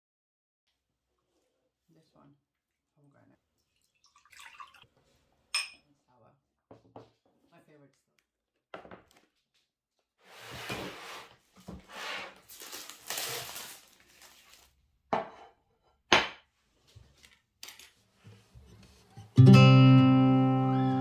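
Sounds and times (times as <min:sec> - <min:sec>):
plastic bag crinkling: 0:12.4 - 0:14.8.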